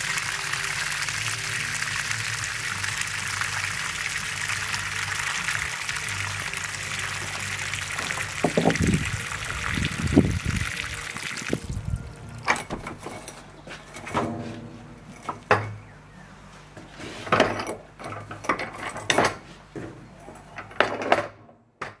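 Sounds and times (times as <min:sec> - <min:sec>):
water splashing onto gravel: 0:00.0 - 0:12.5
metallic clanks and knocks: 0:12.4 - 0:15.8.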